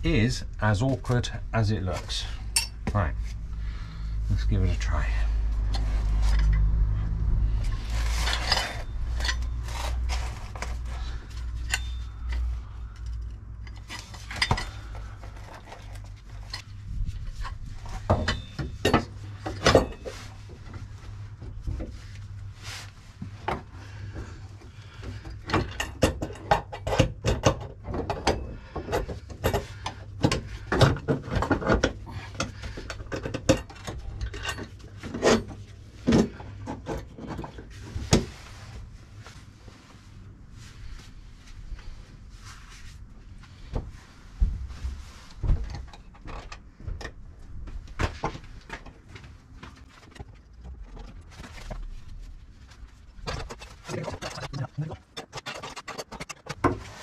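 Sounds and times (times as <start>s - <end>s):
metal tools clinking and rattling: 2.2s - 2.9s, 7.6s - 16.7s, 17.4s - 20.2s, 30.8s - 37.6s, 53.2s - 57.0s.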